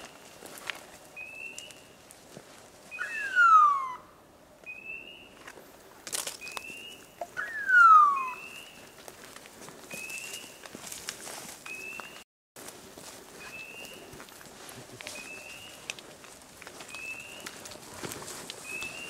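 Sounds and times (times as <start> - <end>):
beeper collar chirps: 3.0 - 4.0, 6.8 - 8.7.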